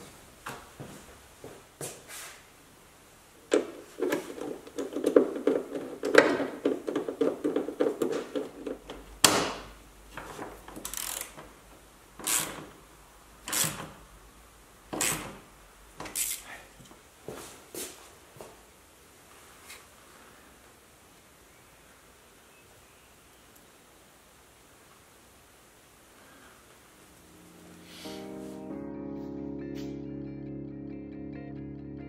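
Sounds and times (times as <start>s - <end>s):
hand ratchet clicking: 10.7s - 11.5s, 12.2s - 12.7s, 13.4s - 14.0s, 15.0s - 15.4s, 16.0s - 16.5s.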